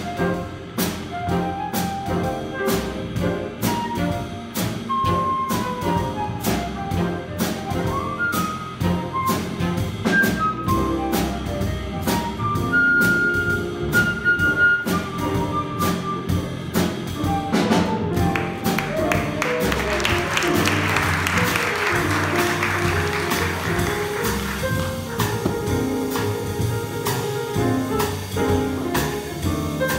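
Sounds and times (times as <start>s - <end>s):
flute soloing: 0.0s - 16.6s
upright bass: 0.0s - 29.9s
audience applause: 18.2s - 25.5s.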